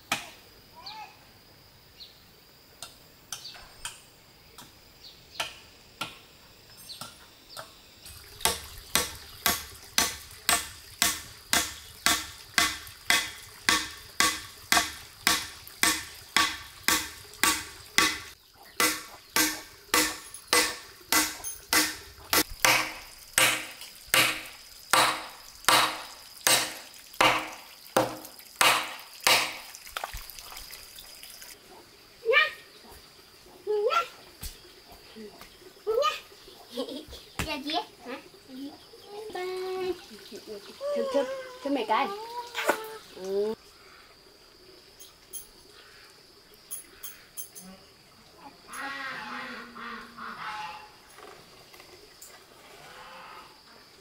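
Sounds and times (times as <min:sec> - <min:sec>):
scattered knocks: 0:08.5 - 0:29.6
rhythmic chopping with a blade: 0:08.5 - 0:29.7.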